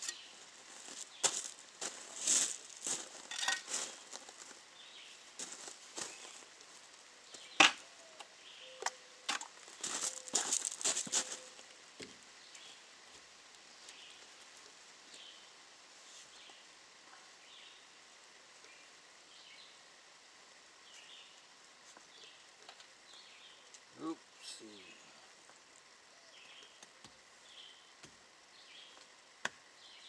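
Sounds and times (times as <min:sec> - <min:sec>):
faint bird chirps: 0:07.2 - 0:09.3.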